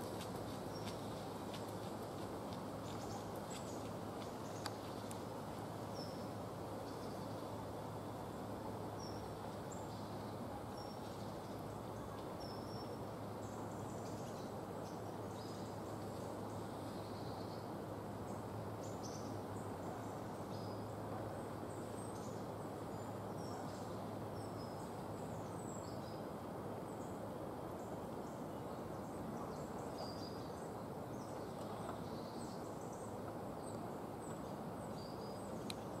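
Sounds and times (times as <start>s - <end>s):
small birds chirping: 0.0s - 17.7s, 27.8s - 36.0s
low hiss and rumble: 0.0s - 36.0s.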